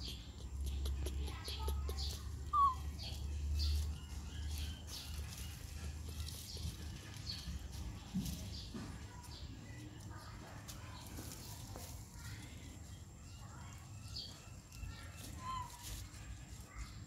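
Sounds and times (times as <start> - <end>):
monkey chewing branches: 0.0 - 9.0
leaves and twigs rustling: 2.0 - 17.0.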